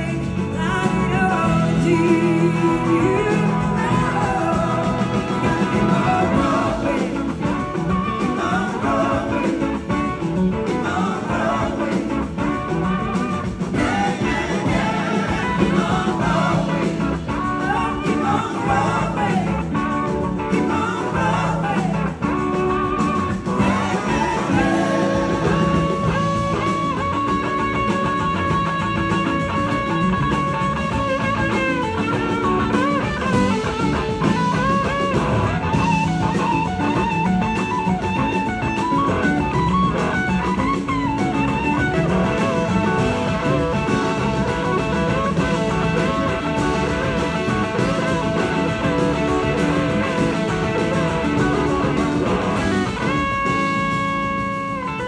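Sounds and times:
bass guitar: 0:00.0 - 0:55.0
drums: 0:00.0 - 0:55.0
electric guitar bending notes: 0:00.0 - 0:55.0.

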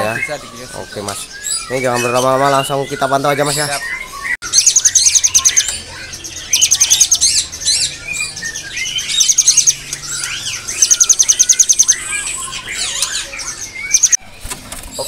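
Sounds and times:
loud fast high bird trill: 0:00.0 - 0:14.2
songbirds chirping and singing: 0:00.0 - 0:15.0.

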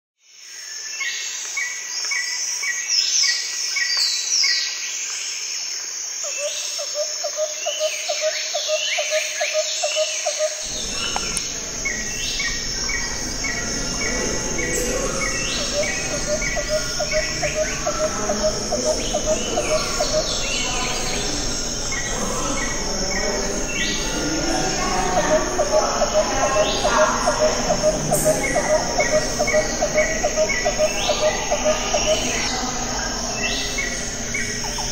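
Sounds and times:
insect-like chirping: 0:05.5 - 0:34.9
birdsong: 0:06.3 - 0:34.9
low hum: 0:10.6 - 0:34.9
steady high whine: 0:10.6 - 0:34.9
low pulsing trill: 0:10.7 - 0:34.9.

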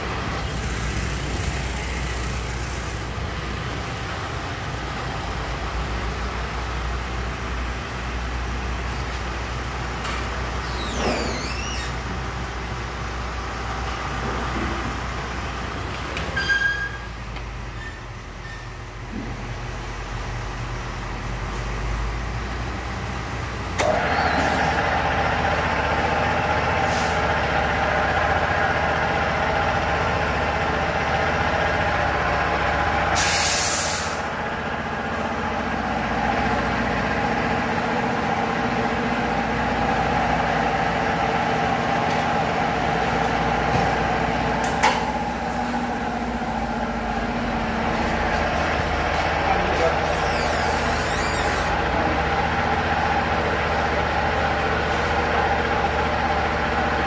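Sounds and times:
short hiss: 0:33.2 - 0:34.2
machinery humming: 0:34.2 - 0:57.0.

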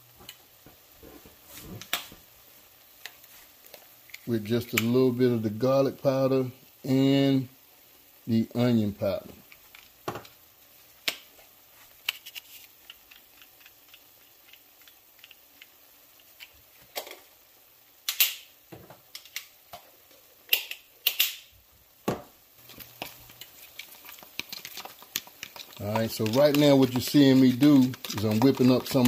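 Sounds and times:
onions simmering crackle: 0:00.0 - 0:29.0
kitchen utensils clicking and tapping: 0:20.5 - 0:21.4, 0:22.7 - 0:29.0.

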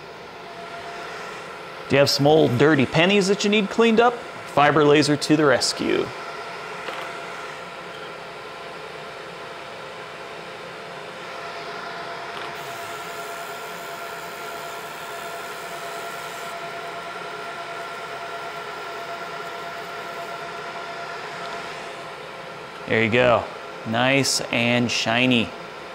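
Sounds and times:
fan hum: 0:00.0 - 0:25.9
laser high hiss: 0:12.6 - 0:15.4.

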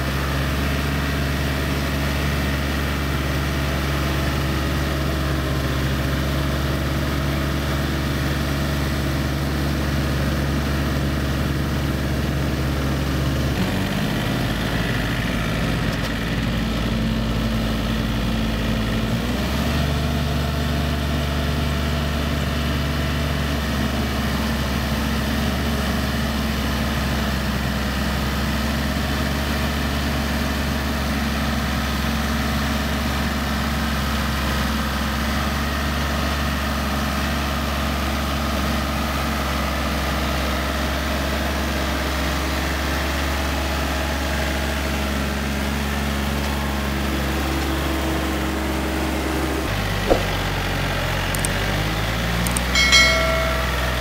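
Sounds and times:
tractor diesel engine running: 0:00.0 - 0:28.6, 0:33.8 - 0:54.0.

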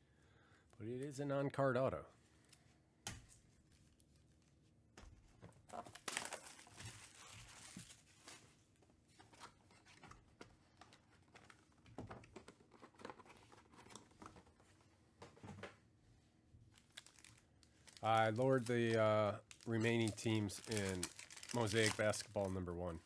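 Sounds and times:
plastic wrap crinkling and tearing: 0:05.6 - 0:08.6, 0:16.7 - 0:23.0.

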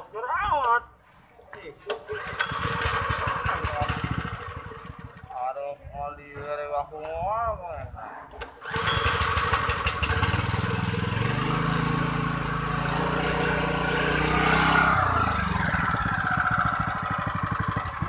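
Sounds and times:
engine pull-start: 0:01.9 - 0:05.4, 0:08.4 - 0:11.3
water pump engine running: 0:02.2 - 0:05.2, 0:08.7 - 0:18.0.

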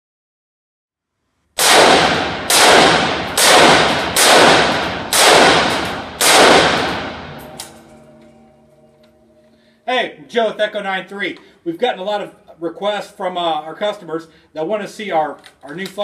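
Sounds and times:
rifle shots echoing indoors: 0:01.6 - 0:08.2.

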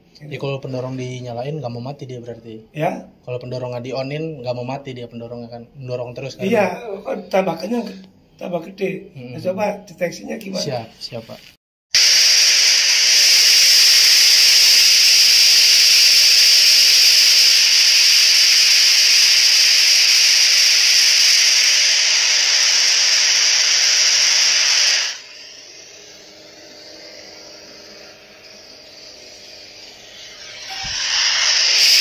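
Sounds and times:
loud steady hiss: 0:12.0 - 0:32.0.

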